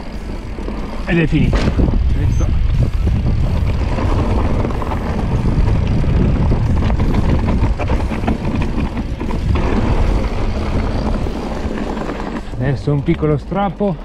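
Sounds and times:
bike clicks and rattles: 0.0 - 14.0
tyres rolling over loose stones: 0.0 - 14.0
wind on microphone: 1.4 - 12.6.

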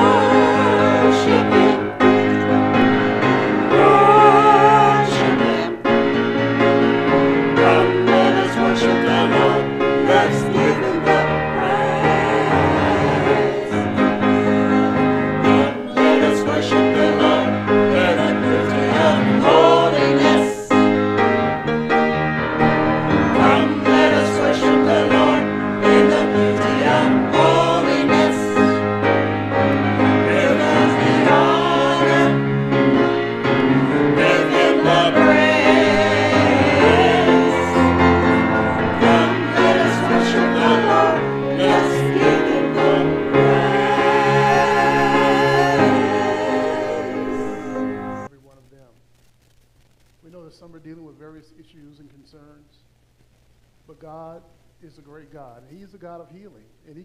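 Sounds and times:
grand piano: 0.0 - 48.3
group singing worship song: 0.0 - 48.3.

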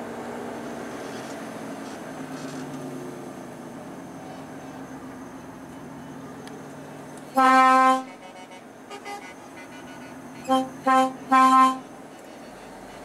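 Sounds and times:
truck cab drone: 0.0 - 13.0
truck horn blasts: 7.3 - 13.0.

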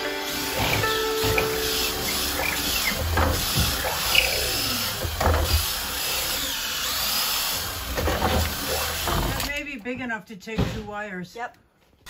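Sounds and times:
power drill boring through wood: 0.0 - 9.5
wood crunching and scraping: 0.0 - 9.6.

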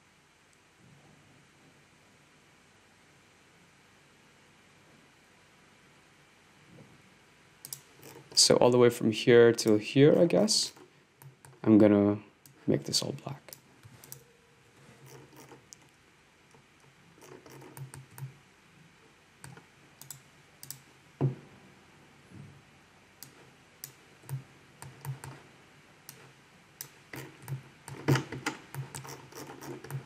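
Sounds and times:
mouse and keyboard clicking: 7.6 - 8.4, 15.0 - 15.9, 17.2 - 18.3, 19.4 - 20.8, 23.2 - 25.4, 26.8 - 30.0.

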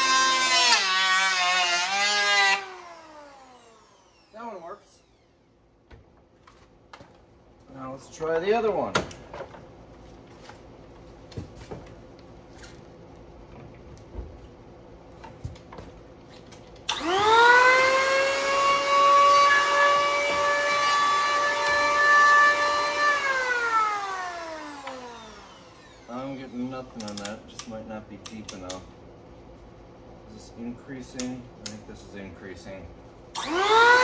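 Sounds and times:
electric planer motor whine: 16.9 - 26.1, 33.4 - 34.0.

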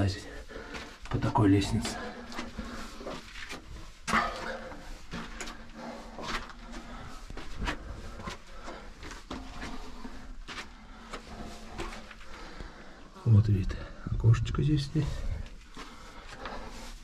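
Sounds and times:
person breathing: 0.2 - 1.1, 4.1 - 13.2, 15.0 - 17.0
footsteps on brick steps: 0.5 - 12.7.

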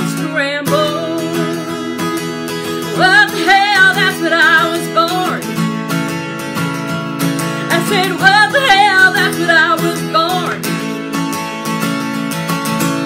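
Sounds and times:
woman singing: 0.0 - 5.6, 7.7 - 10.8
acoustic guitar strumming: 0.0 - 13.0.

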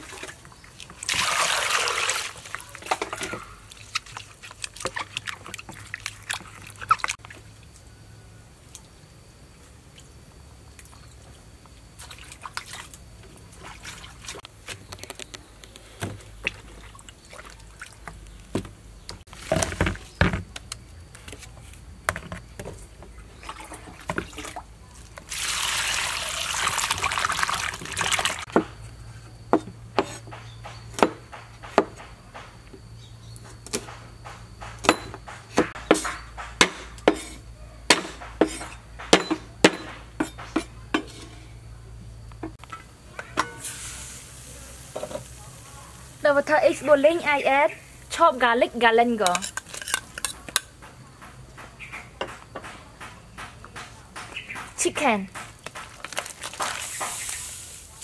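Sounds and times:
liquid being poured: 0.0 - 2.8, 25.3 - 28.4.

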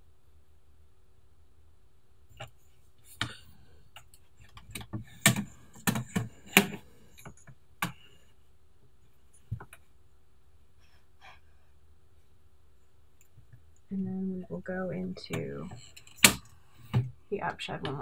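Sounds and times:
wooden loom clicks and knocks: 4.0 - 8.0.

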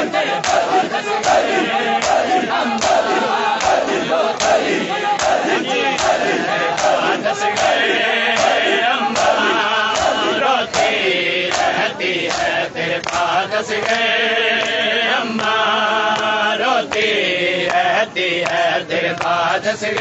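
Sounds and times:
men chanting together: 0.0 - 20.0
hands slapping chests: 0.4 - 7.8.

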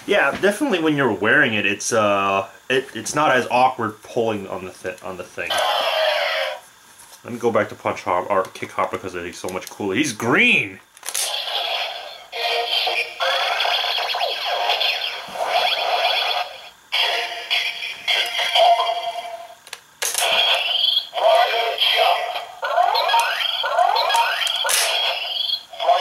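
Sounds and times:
toy synthesized voice: 5.5 - 6.6, 11.2 - 26.0
toy electronic sound effects: 5.5 - 6.7, 11.0 - 26.0.

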